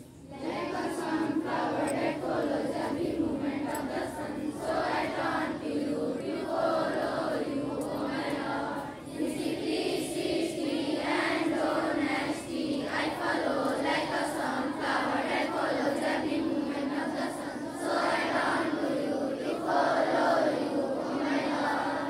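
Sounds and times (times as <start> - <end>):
children singing in unison: 0.0 - 22.0.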